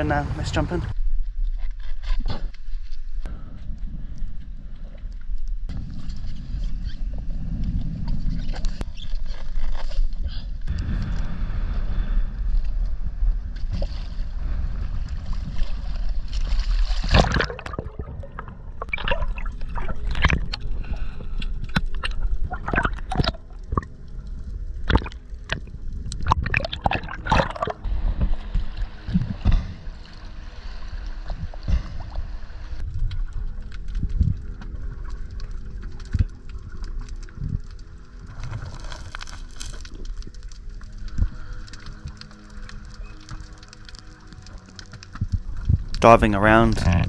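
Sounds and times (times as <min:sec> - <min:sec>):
water and wind noise: 0:00.0 - 0:47.0
underwater clicks and crackles: 0:01.2 - 0:11.3, 0:12.5 - 0:47.0
underwater bubbling: 0:03.7 - 0:47.0
water sloshing: 0:24.8 - 0:32.8.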